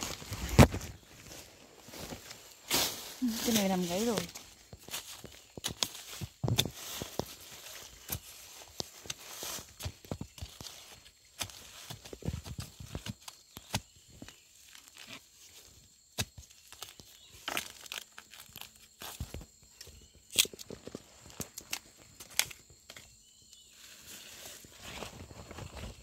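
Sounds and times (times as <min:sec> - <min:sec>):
dry leaves rustling and crackling: 0:00.0 - 0:13.2.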